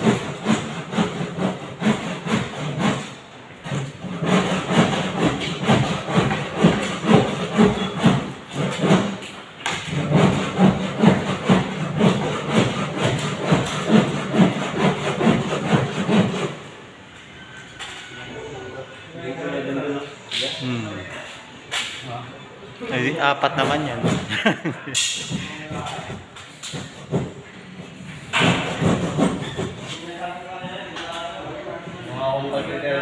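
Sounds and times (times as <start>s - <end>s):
hand saw cutting board: 0.0s - 16.7s, 23.6s - 24.6s, 25.2s - 30.2s.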